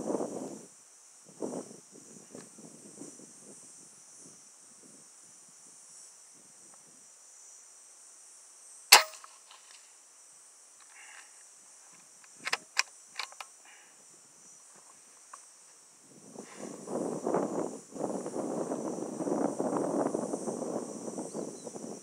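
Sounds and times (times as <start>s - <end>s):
high insect buzz: 0.0s - 22.0s
air rifle shot: 8.9s - 9.3s
rifle handling clicks: 12.2s - 13.5s.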